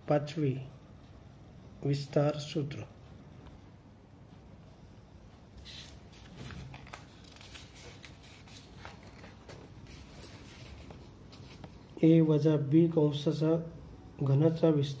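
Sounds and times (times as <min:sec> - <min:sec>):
small clicks and shuffles: 0:05.4 - 0:11.9
paper pages rustling: 0:05.6 - 0:11.8.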